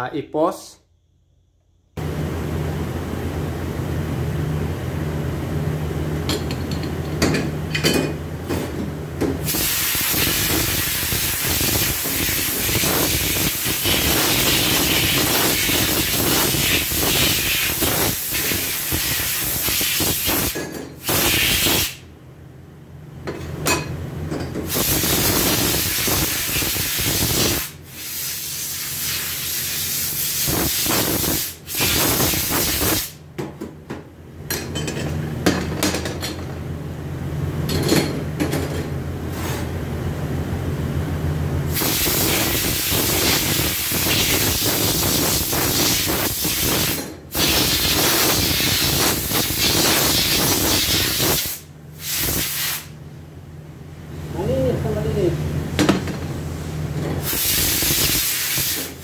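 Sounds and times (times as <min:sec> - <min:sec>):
spray gun hissing: 0:41.8 - 0:52.9, 0:57.2 - 0:58.9.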